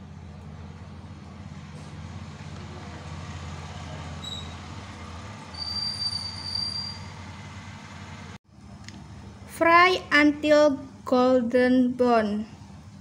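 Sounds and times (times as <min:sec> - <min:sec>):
thin high-pitched squeal: 0:04.2 - 0:04.6, 0:05.5 - 0:07.3.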